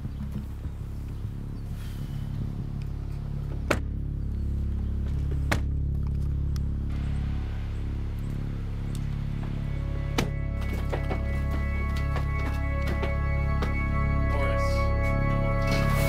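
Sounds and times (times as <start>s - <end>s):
dark synthesizer drone: 0.0s - 16.0s.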